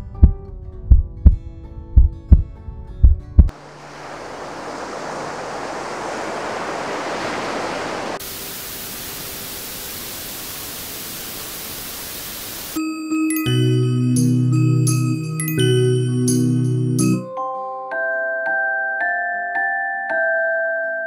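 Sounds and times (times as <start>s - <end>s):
ocean waves sound from soother: 3.5s - 12.8s
steady white noise: 3.5s - 12.8s.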